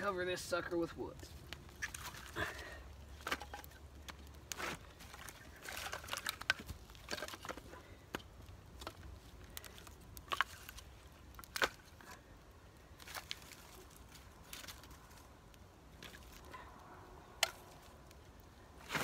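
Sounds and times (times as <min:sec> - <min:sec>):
firewood knocking and clattering: 0:03.1 - 0:12.3.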